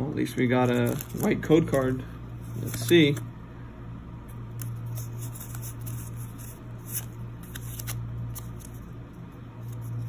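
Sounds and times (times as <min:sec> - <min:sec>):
steady low hum: 0:00.0 - 0:10.0
trading cards scraping and clicking: 0:00.4 - 0:03.3, 0:04.5 - 0:09.0.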